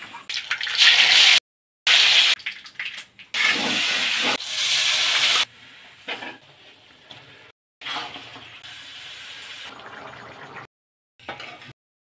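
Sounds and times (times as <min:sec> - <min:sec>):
hot oil sizzling: 0:00.7 - 0:02.4, 0:03.4 - 0:06.0, 0:07.8 - 0:10.6
water hissing in hot oil: 0:03.4 - 0:05.8, 0:08.0 - 0:09.8.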